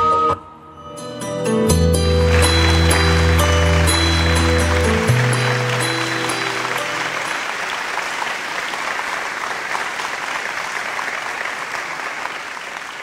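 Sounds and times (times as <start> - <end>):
music notes: 0.6 - 8.1
audience applause: 2.0 - 13.0.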